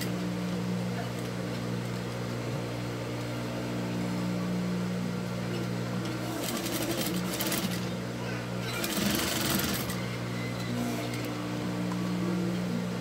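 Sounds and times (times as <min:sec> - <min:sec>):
sewing machine motor humming: 0:06.0 - 0:07.9, 0:08.6 - 0:11.6.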